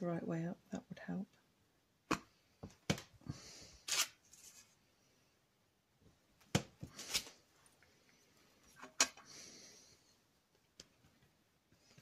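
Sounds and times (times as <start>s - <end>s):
knocks and clicks of craft supplies: 2.1s - 3.2s.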